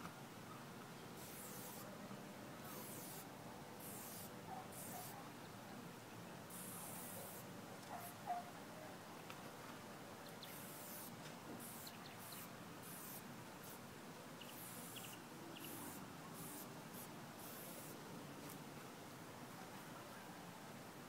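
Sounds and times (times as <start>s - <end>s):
spray paint can hissing: 1.2s - 1.9s, 2.6s - 5.1s, 6.5s - 7.4s, 10.4s - 13.8s, 14.4s - 18.0s.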